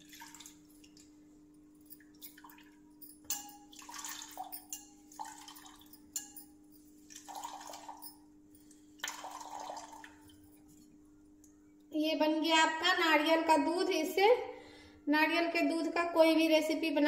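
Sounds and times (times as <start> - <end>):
liquid splashing into steel bowl: 0.0 - 1.2, 2.1 - 6.4, 7.0 - 8.3, 9.0 - 10.4
wet cloth being wrung: 7.0 - 8.2.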